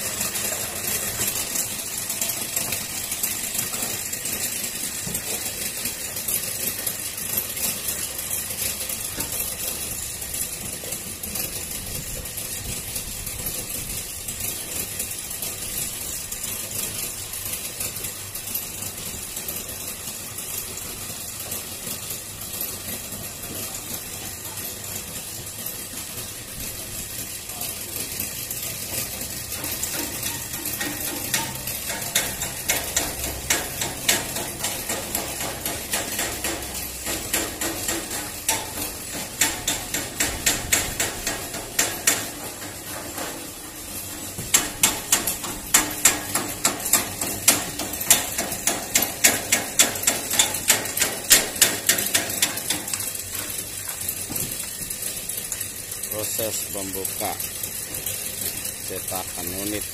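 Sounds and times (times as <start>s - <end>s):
mechanical rattling and clicking: 0.0s - 59.9s
sharp metallic knocks: 28.9s - 54.6s.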